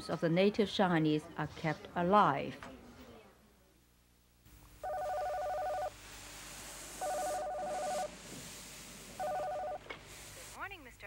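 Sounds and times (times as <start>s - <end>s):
telephone ringing: 4.8s - 6.0s, 7.0s - 8.1s, 9.2s - 9.8s.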